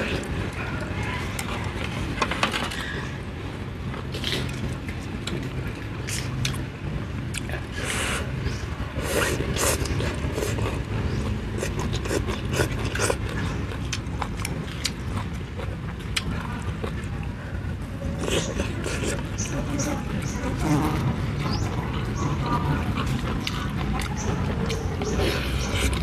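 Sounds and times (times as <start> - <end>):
wet chewing and mouth smacks: 3.9 - 7.8, 9.0 - 17.4.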